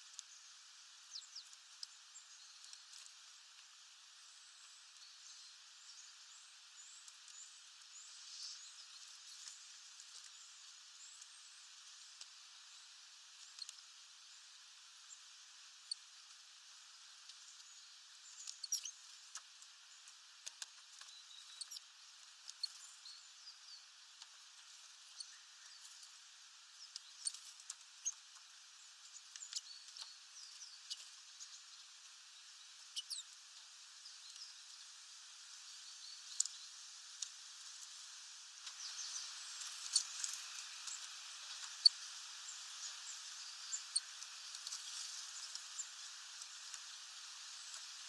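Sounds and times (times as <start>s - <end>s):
birds pecking seeds: 17.2s - 23.1s, 26.8s - 31.8s, 35.7s - 48.0s.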